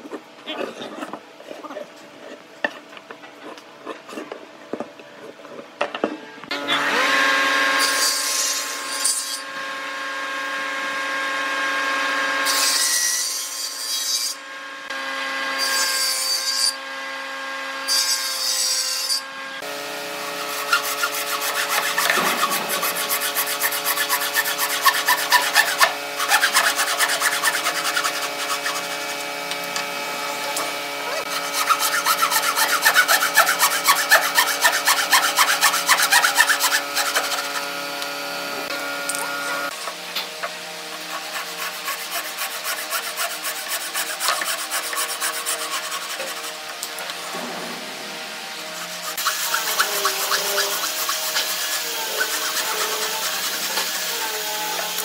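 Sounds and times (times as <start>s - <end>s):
table saw cutting wood: 6.5s - 55.0s
handsaw rasping through wood: 20.2s - 29.4s, 31.1s - 37.7s, 39.8s - 46.7s, 48.7s - 55.0s.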